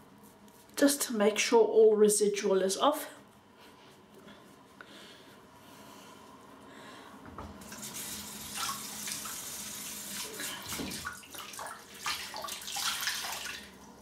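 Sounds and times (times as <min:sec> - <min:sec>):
sink tap running: 0:07.6 - 0:10.4
water splashing: 0:07.7 - 0:13.8.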